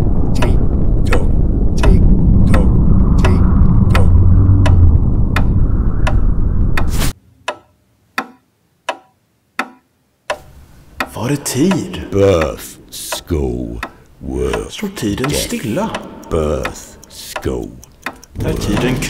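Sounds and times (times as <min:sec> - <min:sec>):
clock ticking: 0:00.0 - 0:06.2, 0:06.8 - 0:19.0
low rumble of explosion: 0:00.0 - 0:07.2.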